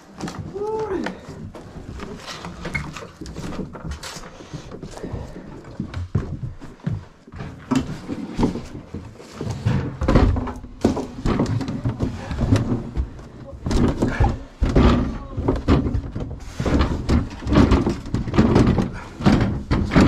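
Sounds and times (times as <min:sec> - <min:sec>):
household items knocking and clattering: 0:00.0 - 0:20.0
heavy thumps: 0:09.6 - 0:20.0.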